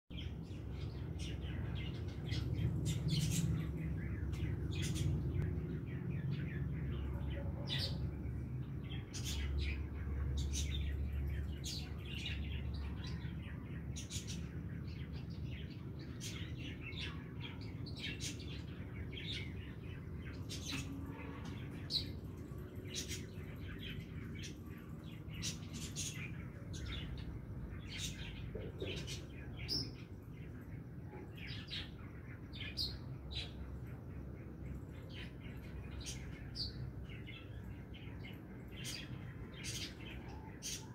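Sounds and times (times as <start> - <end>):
birds chirping: 0.1 - 40.9.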